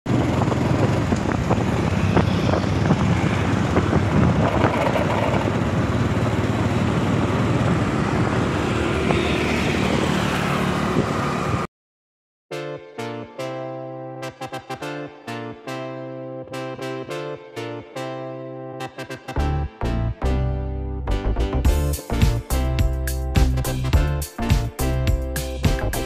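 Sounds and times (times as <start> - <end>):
road traffic rumble: 0.1 - 11.7
piano music: 12.5 - 26.0.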